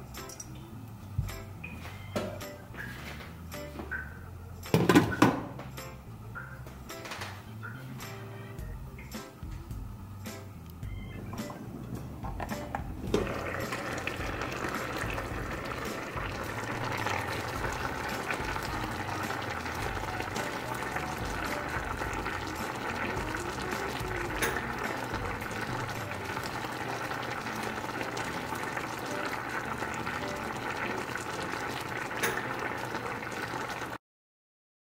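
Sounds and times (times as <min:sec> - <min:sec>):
food bubbling in pan: 0:10.8 - 0:34.0.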